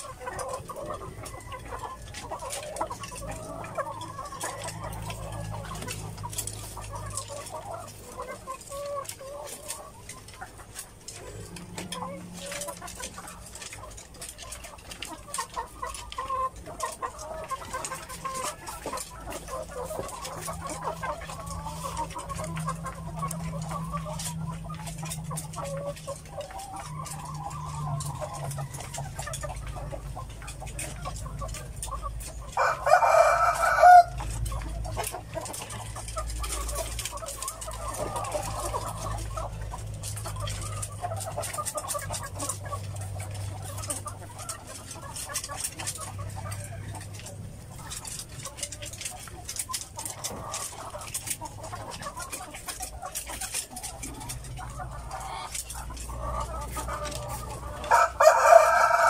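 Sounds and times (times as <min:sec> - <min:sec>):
hens clucking: 0:00.0 - 0:59.0
loud drawn-out chicken call: 0:32.6 - 0:34.2.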